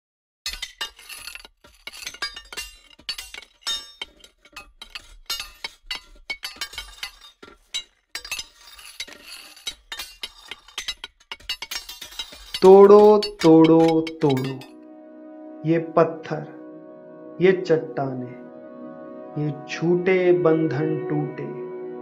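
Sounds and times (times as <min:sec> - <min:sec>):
ringing metal clinking strikes: 0:00.5 - 0:14.7.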